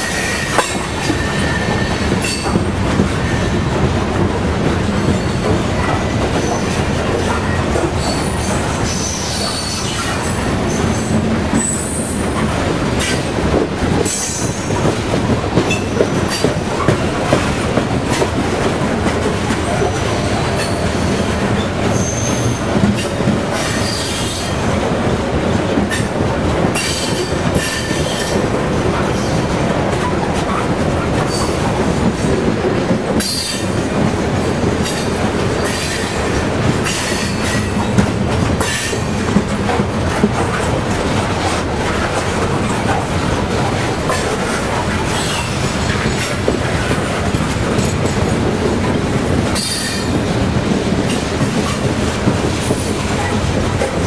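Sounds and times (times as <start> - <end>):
wheel squeals: 21.9 - 22.6.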